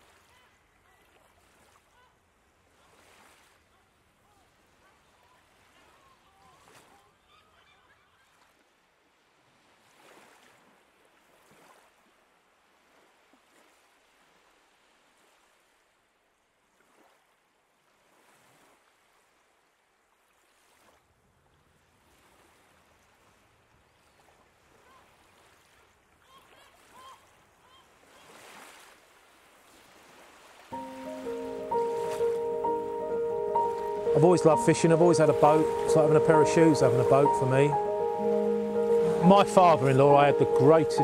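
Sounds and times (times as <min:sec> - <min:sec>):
sea waves washing on shore: 0:24.1 - 0:41.0.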